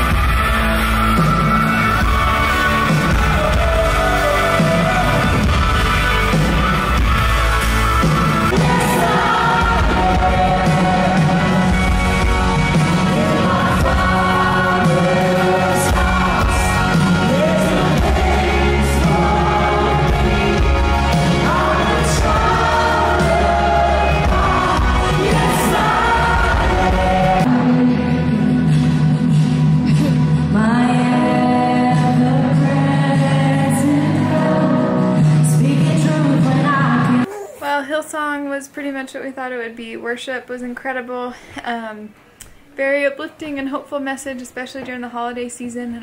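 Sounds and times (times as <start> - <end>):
live band playing: 0.0 - 37.7
person singing: 1.2 - 5.6, 8.4 - 29.0, 29.8 - 37.7.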